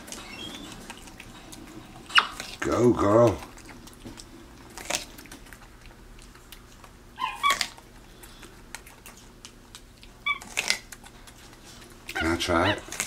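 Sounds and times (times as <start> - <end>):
monkey crunching corn: 0.0 - 13.0
monkey squeak: 0.2 - 0.8, 2.1 - 2.4, 7.2 - 7.7.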